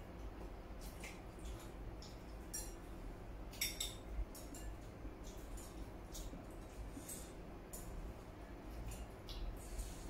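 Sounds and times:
low steady hum: 0.0s - 10.0s
chopsticks clinking on porcelain bowls: 0.9s - 2.8s, 3.5s - 6.3s, 7.0s - 8.0s.

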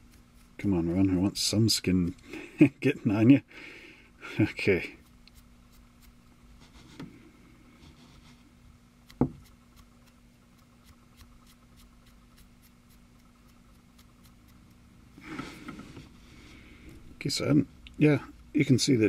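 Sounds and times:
soft brushing: 0.0s - 2.0s, 4.6s - 14.6s
low room hum: 0.0s - 19.0s
faint small ticks: 9.0s - 14.8s.

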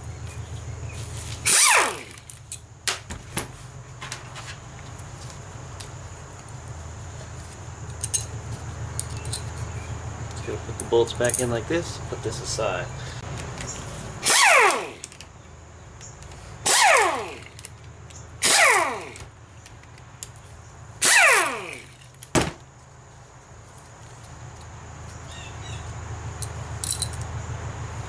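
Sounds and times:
small electric power tool: 1.4s - 2.3s, 14.2s - 15.2s, 16.6s - 17.7s, 18.4s - 19.3s, 21.0s - 22.0s.

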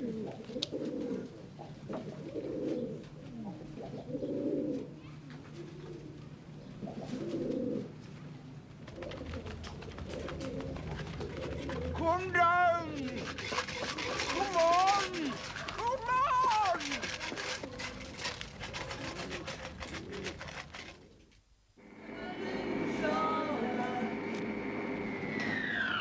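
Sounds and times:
pigeons cooing: 0.0s - 21.4s.

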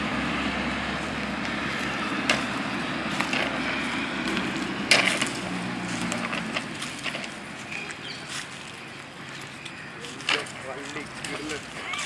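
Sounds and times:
horns clashing with woody clacks: 2.2s - 2.6s, 3.2s - 7.4s, 10.2s - 11.6s.

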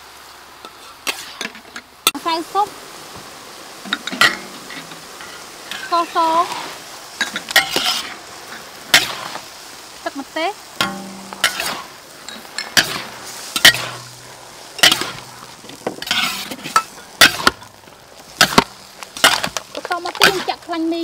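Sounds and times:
vegetables sizzling in hot oil: 0.0s - 21.0s
spatula and ladle clanking on wok: 3.8s - 6.2s, 7.2s - 9.4s, 10.8s - 14.2s, 14.8s - 17.8s, 18.4s - 20.7s.

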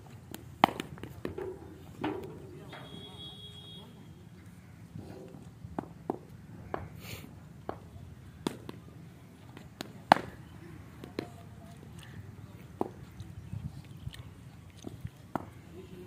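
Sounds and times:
cricket ball hitting bat: 0.3s - 2.3s.

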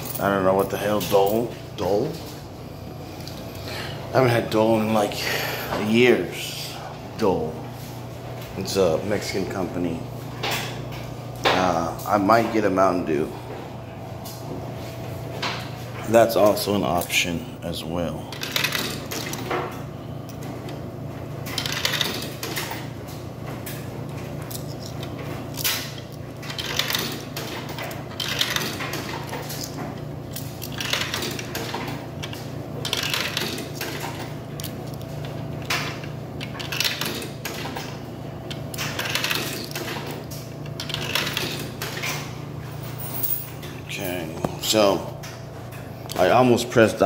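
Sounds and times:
coins clinking into vending machine: 0.0s - 2.0s, 18.3s - 19.8s, 21.5s - 22.9s, 24.4s - 44.2s
steady low hum: 0.0s - 47.0s.

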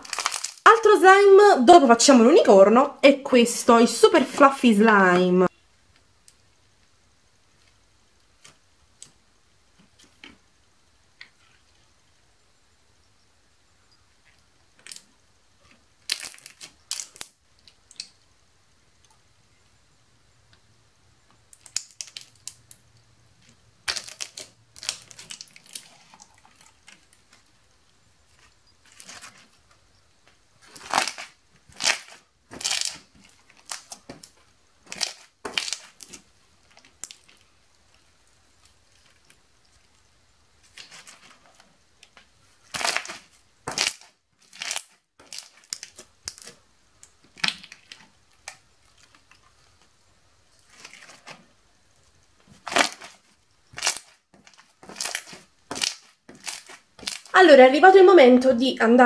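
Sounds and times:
slime squashing crackly sticky: 0.0s - 0.7s, 16.0s - 18.1s, 21.5s - 22.8s, 23.4s - 27.6s, 28.3s - 29.6s, 30.6s - 38.1s, 40.6s - 49.9s, 52.5s - 57.4s.

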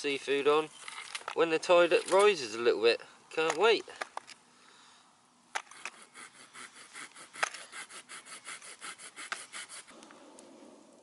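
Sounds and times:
rasping scraping by hand: 5.6s - 10.0s.

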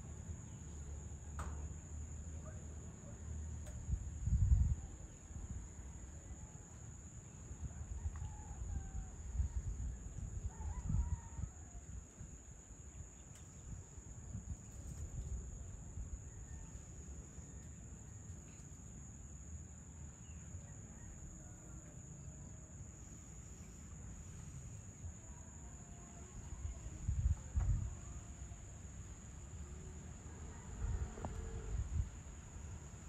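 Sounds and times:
crickets chirping: 0.0s - 33.0s
wind rumbling on microphone: 3.6s - 6.5s, 7.5s - 16.8s, 26.3s - 28.4s, 30.4s - 33.0s.

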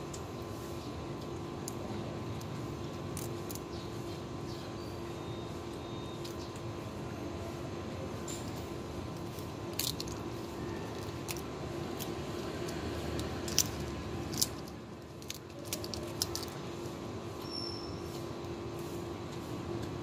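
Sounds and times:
background hum: 0.0s - 20.0s
kittens crunching shrimp shells: 1.1s - 4.0s, 9.0s - 16.7s.

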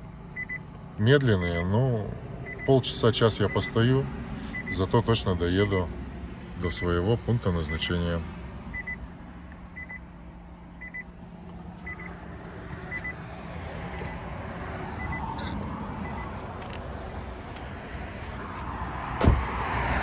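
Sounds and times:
electronic warning beep: 0.4s - 0.6s, 2.4s - 3.8s, 4.5s - 5.1s, 6.6s - 7.0s, 8.7s - 9.0s, 9.8s - 10.0s, 10.8s - 11.1s, 11.8s - 12.2s, 12.9s - 13.2s, 15.0s - 16.4s
thump: 19.2s - 19.5s.

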